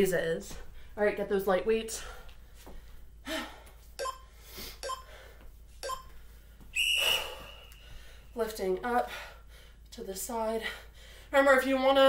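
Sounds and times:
woman breathing hard and gasping: 2.1s - 3.8s.

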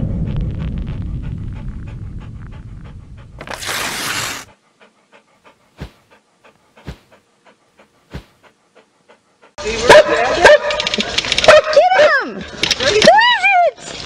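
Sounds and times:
low rumble: 0.0s - 3.4s
dog panting: 0.9s - 3.5s, 4.1s - 10.8s.

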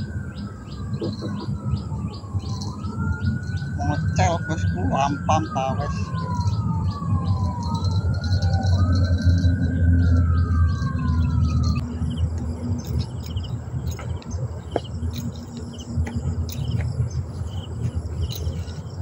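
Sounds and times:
bird calls: 0.0s - 5.2s, 5.8s - 19.0s
insects chirping: 0.0s - 19.0s
steady low hum: 5.8s - 19.0s.

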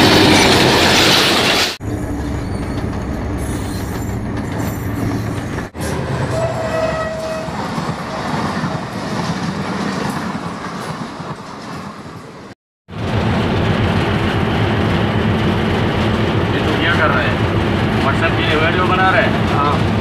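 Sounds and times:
diesel locomotive engine running: 0.0s - 20.0s
train horn note: 6.2s - 7.6s
train wheels clattering on rails: 7.2s - 20.0s.

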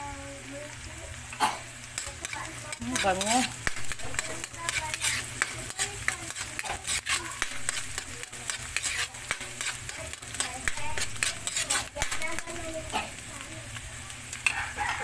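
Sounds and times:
onion sizzling in oil: 0.0s - 15.0s
metal utensil scraping pan: 1.5s - 13.2s.

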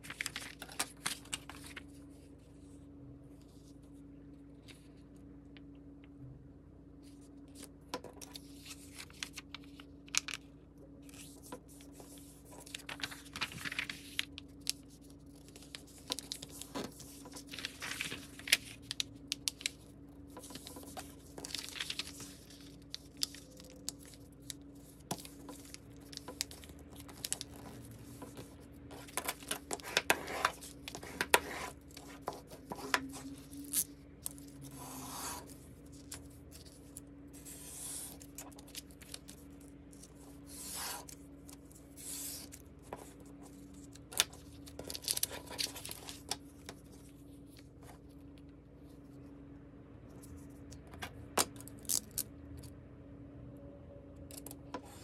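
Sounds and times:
paper rustling and crinkling: 0.0s - 2.7s, 7.0s - 48.2s.

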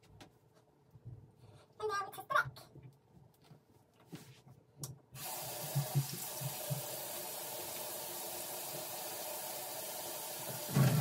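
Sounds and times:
water running from tap: 5.2s - 11.0s.

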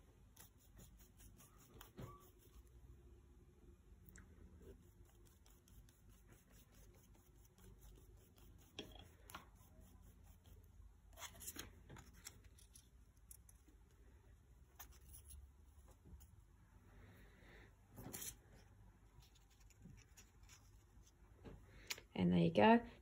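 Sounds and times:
paintbrush scratching on paper: 0.1s - 2.9s, 4.6s - 12.4s.

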